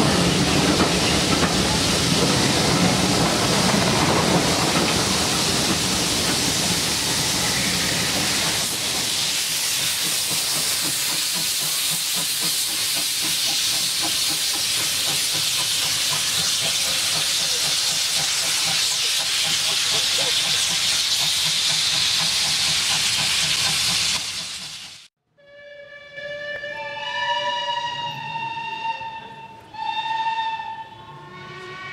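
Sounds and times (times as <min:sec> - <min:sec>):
steam locomotive hissing: 0:00.0 - 0:25.1
train wheels clattering on rails: 0:00.0 - 0:25.1.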